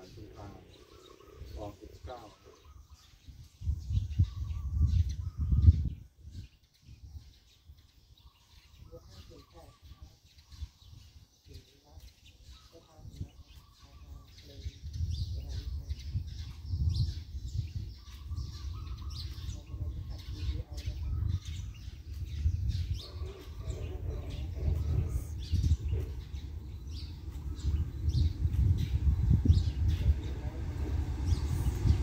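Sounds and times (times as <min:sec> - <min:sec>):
small birds chirping: 0:00.0 - 0:32.0
low uneven rumble: 0:14.7 - 0:32.0.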